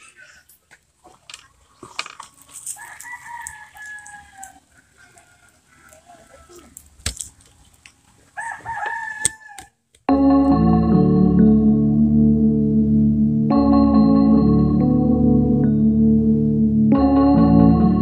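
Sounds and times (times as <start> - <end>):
rooster crowing: 2.7 - 6.8, 8.4 - 9.8
loud music: 10.1 - 18.0.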